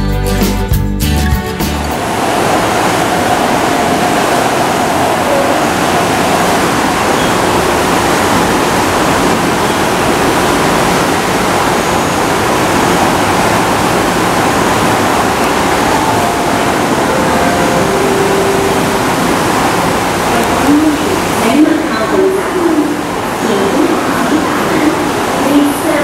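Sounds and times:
loud steady rushing noise: 0:01.5 - 0:26.0.

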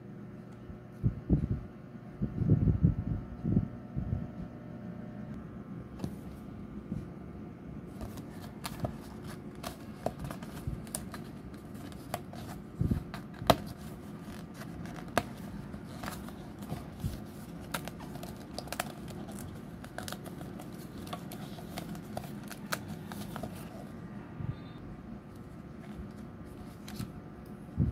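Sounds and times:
low steady hum: 0:00.0 - 0:27.9
cardstock crackling and snapping: 0:07.9 - 0:23.7.

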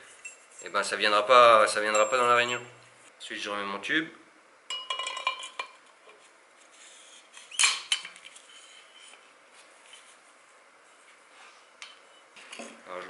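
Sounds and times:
metal fork tubes clinking: 0:01.7 - 0:02.6.

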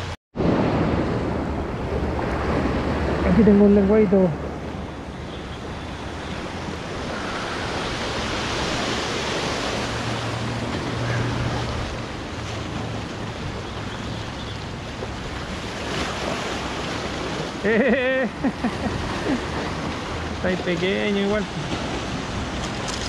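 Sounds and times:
wind on microphone: 0:00.0 - 0:17.7
ocean surf washing ashore: 0:00.0 - 0:23.0.

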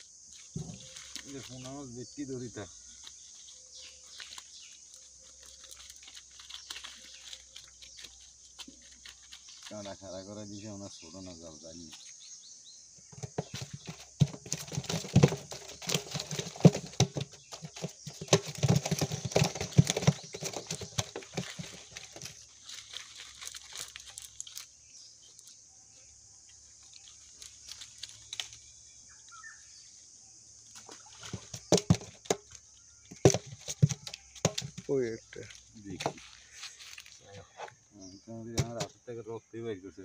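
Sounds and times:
net and dry leaves rustling: 0:00.0 - 0:01.9, 0:02.9 - 0:10.0, 0:18.6 - 0:25.6, 0:26.6 - 0:28.7, 0:36.2 - 0:37.3
insects chirring: 0:00.0 - 0:40.0.

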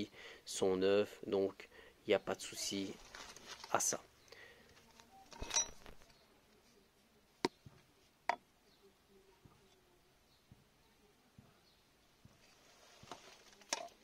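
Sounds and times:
brief rustle: 0:02.8 - 0:04.0.

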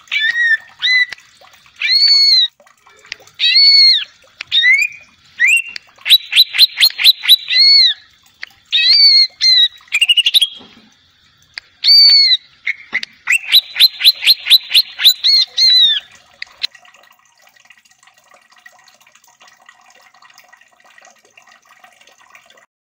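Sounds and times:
bird calling in sharp whistles: 0:00.1 - 0:01.2, 0:01.8 - 0:02.5, 0:03.4 - 0:08.0, 0:08.8 - 0:10.6, 0:11.8 - 0:16.1.

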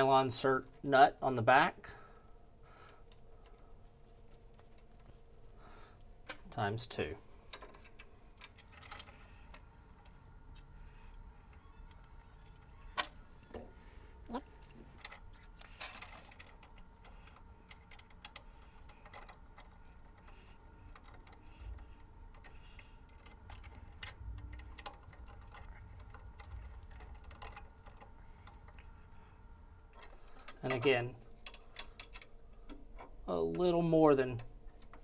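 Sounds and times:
faint low hum: 0:00.0 - 0:35.0.

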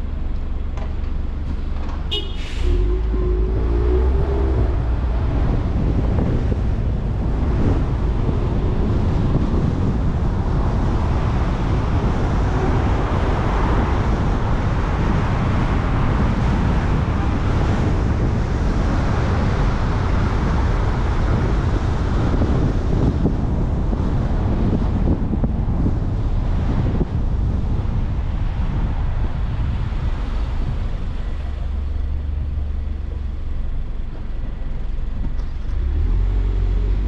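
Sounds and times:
car tyre rumble: 0:00.0 - 0:37.0
wind on microphone: 0:01.6 - 0:37.0.

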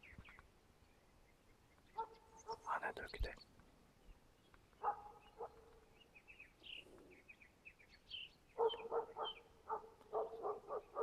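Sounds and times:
small birds chirping: 0:00.0 - 0:11.0
dog barking: 0:02.0 - 0:02.7, 0:04.8 - 0:05.8, 0:08.6 - 0:11.0.

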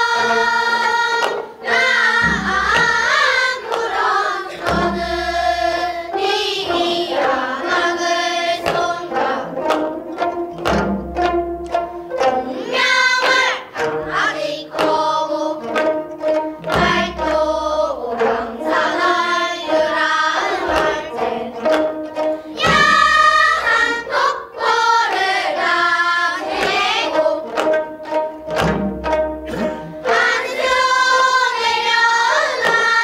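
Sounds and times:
children singing in unison: 0:00.0 - 0:33.0
plucked zither: 0:26.4 - 0:30.8.

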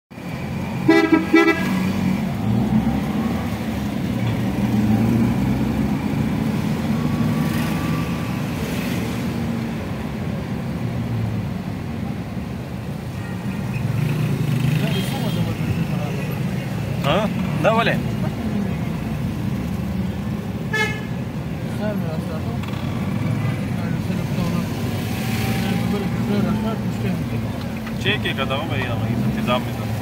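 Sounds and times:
vehicle engine and road noise: 0:00.1 - 0:30.0
vehicle horn toots: 0:00.8 - 0:01.8, 0:20.7 - 0:21.1.

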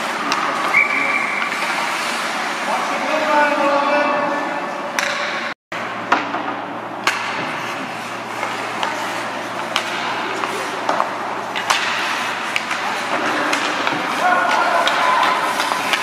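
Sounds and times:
hockey sticks and puck clacking: 0:00.0 - 0:02.3, 0:05.0 - 0:05.4, 0:06.1 - 0:16.0.

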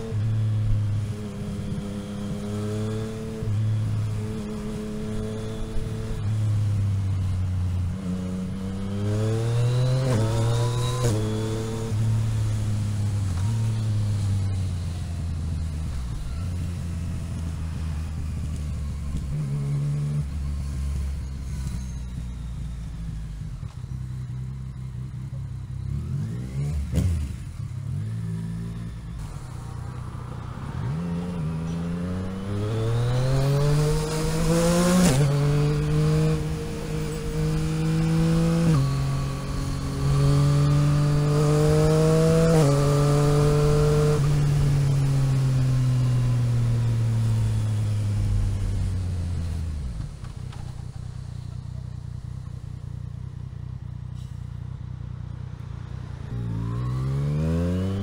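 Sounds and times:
motorcycle engine accelerating: 0:00.0 - 0:58.0
wind and road noise: 0:00.0 - 0:58.0.

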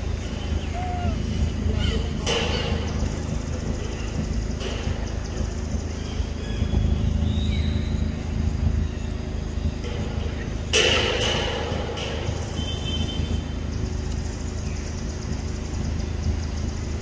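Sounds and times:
low engine rumble: 0:00.0 - 0:17.0.

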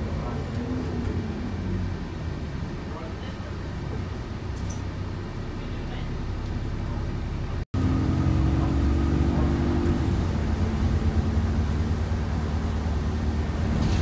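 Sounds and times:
bus engine running: 0:00.0 - 0:14.0
steady drivetrain whine: 0:07.3 - 0:14.0.

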